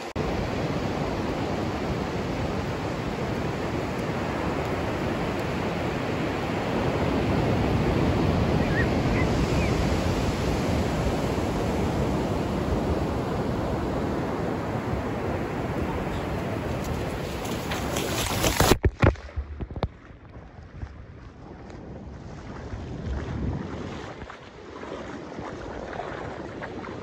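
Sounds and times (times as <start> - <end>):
ocean surf breaking on beach: 0.0 - 18.8.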